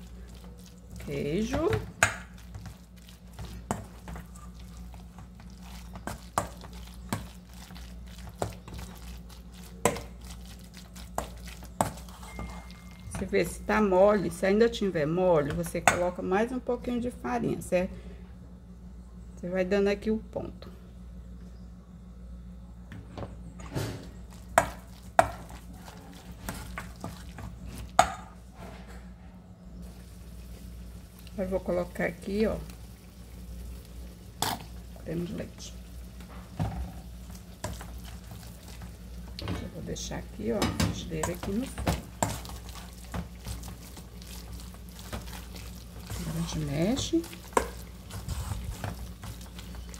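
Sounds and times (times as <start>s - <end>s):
batter being stirred: 0.0s - 16.2s, 24.2s - 28.3s, 29.9s - 49.9s
spoon scraping in bowl: 11.8s - 13.0s
spoon clinking on metal bowl: 12.2s - 13.0s.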